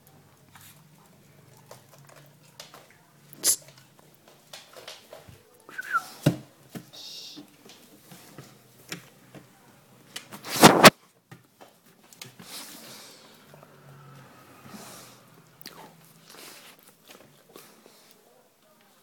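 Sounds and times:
dog brushing against phone: 10.4 - 10.9.

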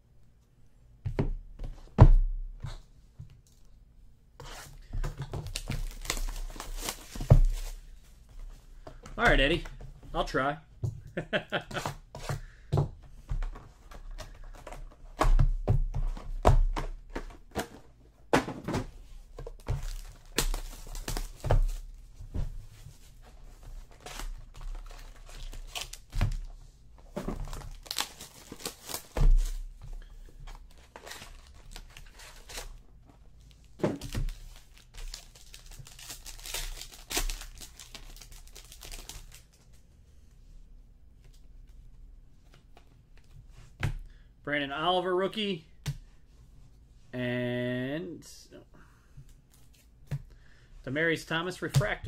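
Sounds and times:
wrappers tearing and crinkling: 5.4 - 7.9, 24.0 - 26.5, 27.5 - 29.6, 34.0 - 39.5.

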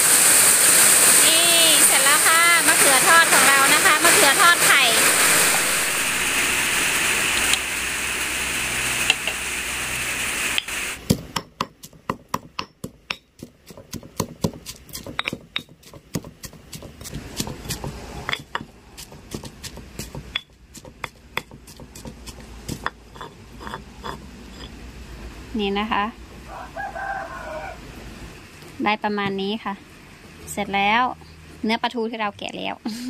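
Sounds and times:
steady hiss: 0.0 - 11.5
stone pestle pounding in mortar: 10.6 - 24.7.

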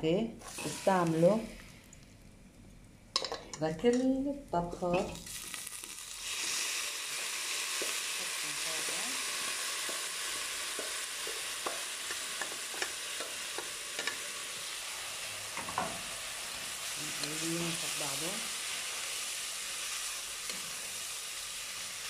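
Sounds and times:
rice sizzling with pops: 4.9 - 22.0.

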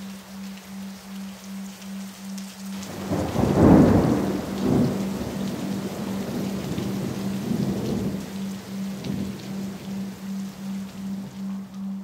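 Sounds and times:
steady rain: 0.0 - 12.0
thunder rumbling: 2.9 - 10.2.

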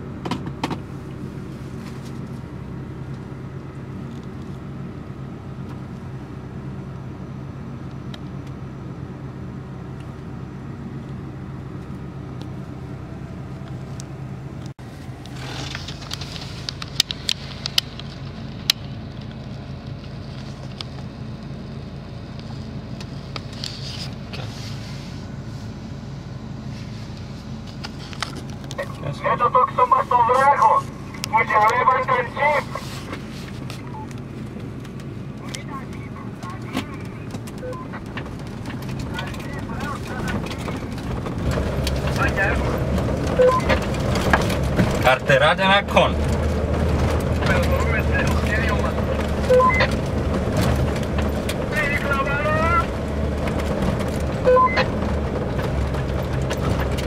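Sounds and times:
car engine running: 0.0 - 57.0
sharp clicks and knocks: 34.1 - 45.3, 46.2 - 52.2
tyres rumbling on loose stones: 34.5 - 57.0.

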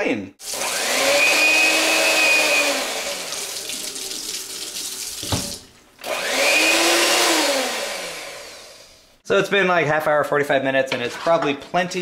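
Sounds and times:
electric hand mixer whirring: 0.4 - 3.9, 6.0 - 9.2
tap water splashing: 3.0 - 5.8.

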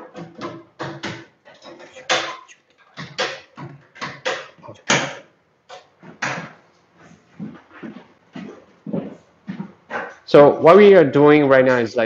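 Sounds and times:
knocks and clatter of machine handling: 0.0 - 6.6.

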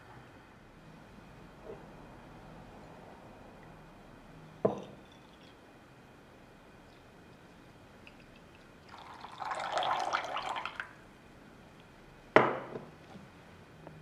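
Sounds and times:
coffee splashing into a bowl: 8.1 - 11.0.

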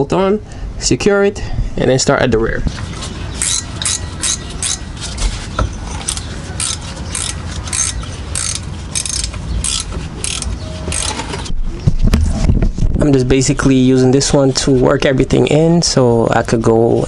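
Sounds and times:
ratchet wrench clicking: 3.4 - 4.8, 6.0 - 11.2.

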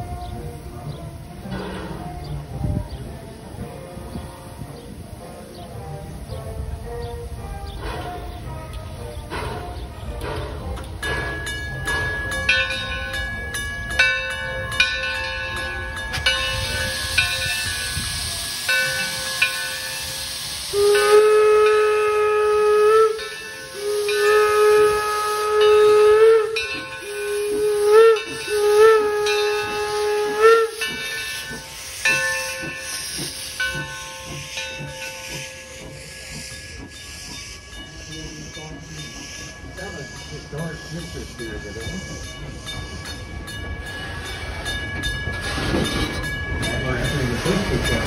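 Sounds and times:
steam hissing: 0.0 - 48.0
steam locomotive whistle blasts: 16.5 - 34.6.

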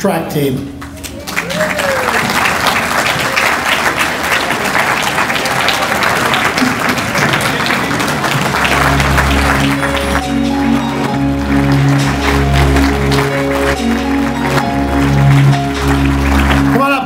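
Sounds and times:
audience applauding: 0.8 - 17.0
music with repeating bass notes: 8.5 - 17.0.

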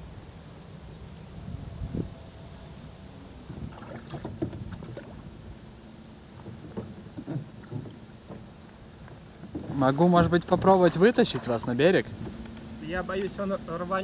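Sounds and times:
wind rumble on microphone: 1.3 - 2.4, 3.4 - 5.6
water lapping against boat hull: 3.4 - 13.4.

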